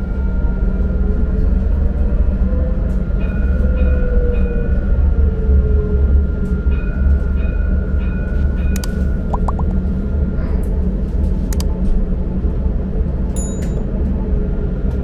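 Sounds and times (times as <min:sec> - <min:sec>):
tram rumbling on track: 0:00.0 - 0:15.0
sharp clicks: 0:08.8 - 0:09.7.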